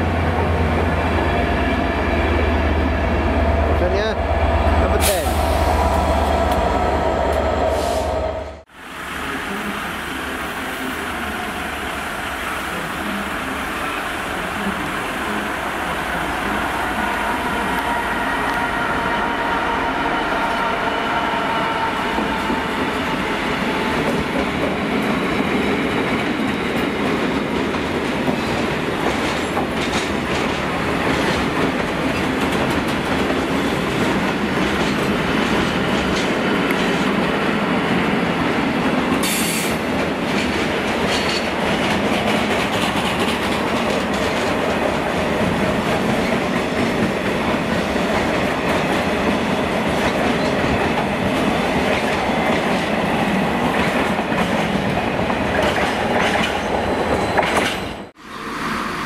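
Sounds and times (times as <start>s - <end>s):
freight train rumbling past: 0.0s - 59.0s
wheels clacking over rail joints: 39.1s - 47.6s.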